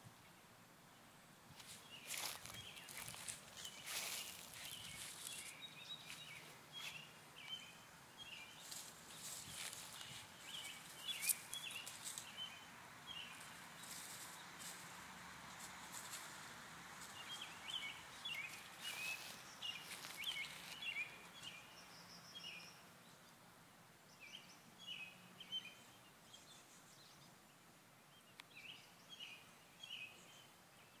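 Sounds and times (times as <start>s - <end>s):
leafy branch rustling: 1.6s - 7.6s, 8.3s - 21.1s
bird chirping: 1.8s - 14.8s, 17.0s - 23.4s, 24.1s - 31.0s.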